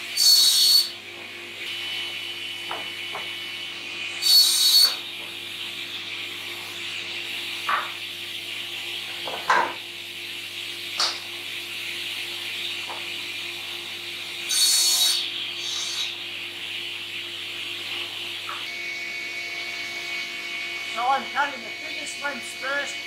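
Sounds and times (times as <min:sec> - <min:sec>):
saw blade cutting wood: 0:00.2 - 0:01.0, 0:04.2 - 0:05.0, 0:14.4 - 0:16.2
panel saw running: 0:17.8 - 0:23.0.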